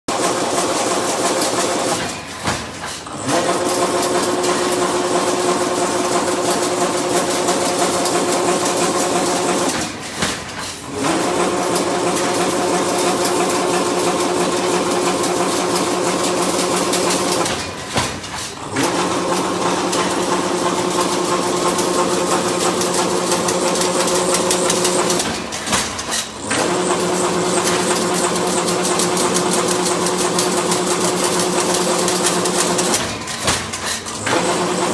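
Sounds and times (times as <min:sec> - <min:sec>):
machine mechanical clatter: 0:00.1 - 0:34.9.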